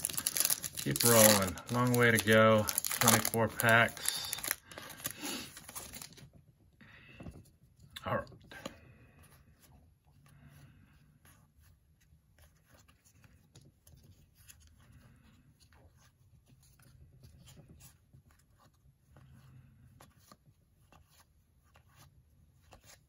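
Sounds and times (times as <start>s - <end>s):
cards being flipped: 0.0s - 6.2s, 20.0s - 23.0s.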